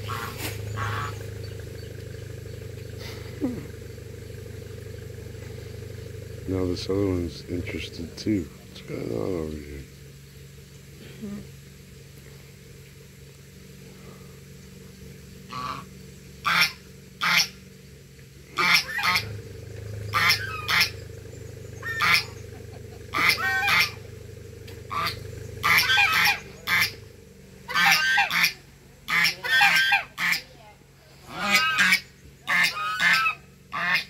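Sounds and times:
geese honking: 0.0 - 3.4, 15.4 - 17.7, 18.5 - 34.0.

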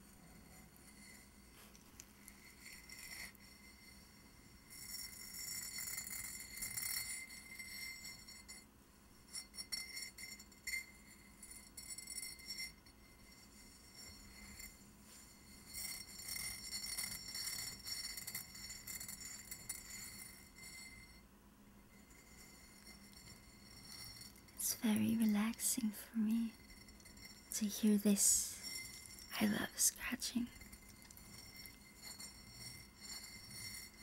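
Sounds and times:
fingernails scratching ceramic: 30.5 - 34.0.

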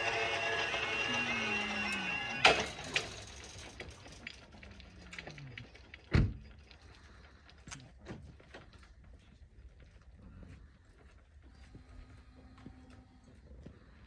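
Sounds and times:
level crossing alarm warbling: 0.0 - 2.7.

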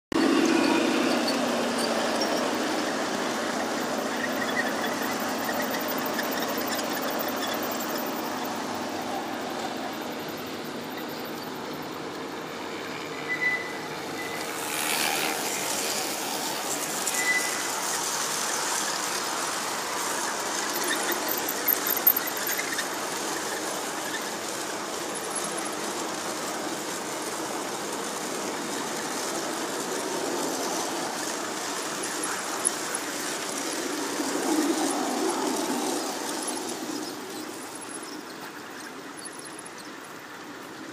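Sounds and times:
model train running on track: 0.1 - 40.9
high wheel squeals: 0.2 - 27.2.

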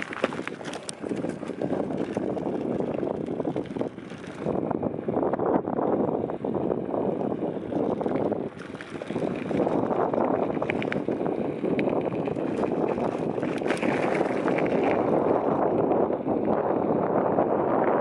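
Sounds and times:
bike clicks and rattles: 0.0 - 4.6, 7.6 - 16.0
wind rushing over microphone: 0.0 - 18.0.

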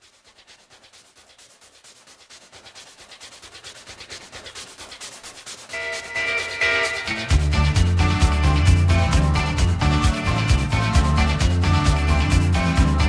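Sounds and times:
rhythmic hissing pulses: 4.3 - 11.2.

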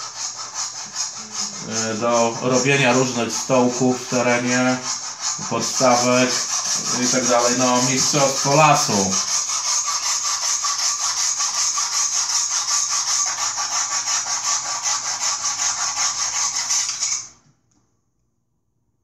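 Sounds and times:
pull saw cutting log: 0.0 - 17.3.

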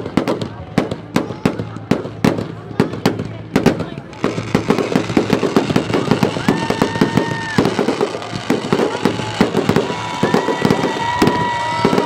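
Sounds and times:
fireworks popping and crackling: 0.0 - 12.0
firework whistles: 4.2 - 12.0.

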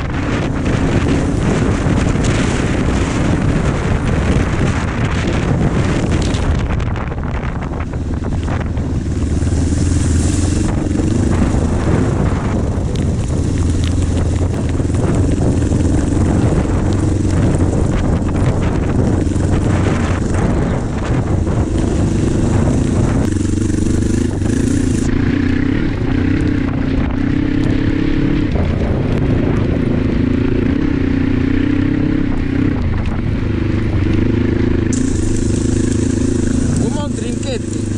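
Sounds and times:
motorcycle engine under load: 0.0 - 37.9
steady hiss: 34.9 - 37.9.

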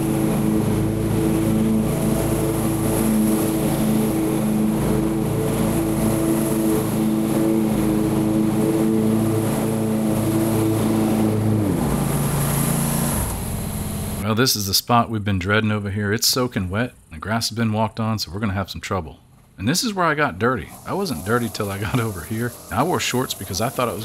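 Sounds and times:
lawn mower engine running: 0.0 - 14.2, 19.2 - 24.0.

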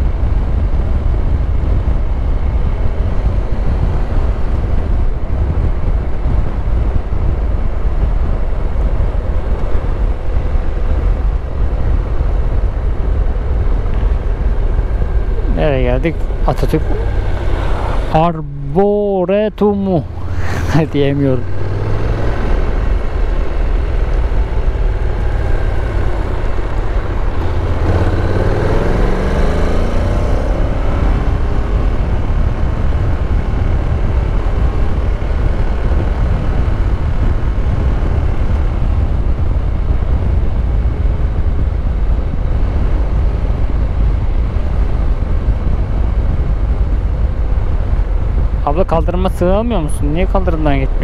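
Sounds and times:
wind and road noise: 0.0 - 51.0
motorcycle engine running: 21.3 - 47.4.

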